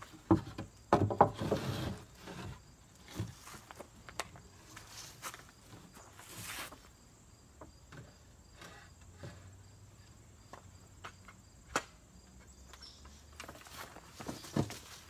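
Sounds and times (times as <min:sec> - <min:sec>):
wooden boards knocking and scraping: 0:00.0 - 0:04.4, 0:10.5 - 0:15.0
insects chirping: 0:00.1 - 0:15.0.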